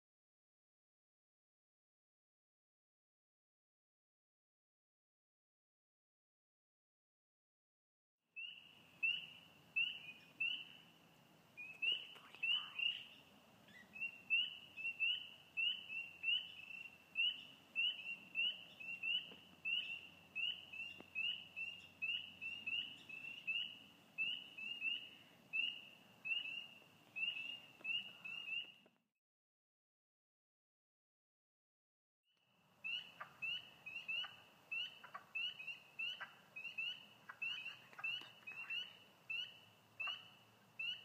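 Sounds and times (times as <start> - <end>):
frogs peeping in chorus: 8.4 - 10.8, 13.8 - 28.8, 32.8 - 41.0.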